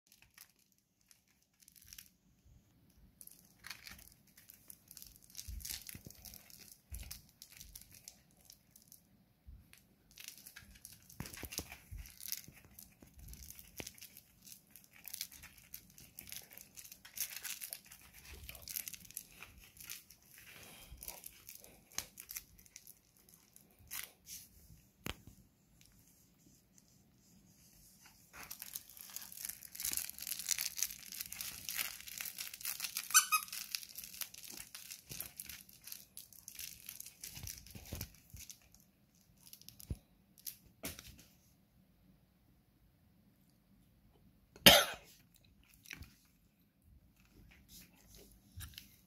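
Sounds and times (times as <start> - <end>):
puppy rustling a plush toy: 10.1 - 39.9.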